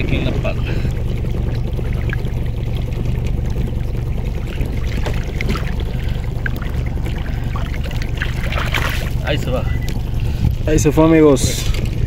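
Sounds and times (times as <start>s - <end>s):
fish thrashing in water: 0.0s - 10.7s
steady low hum: 0.0s - 12.0s
water splashing and trickling: 0.0s - 12.0s.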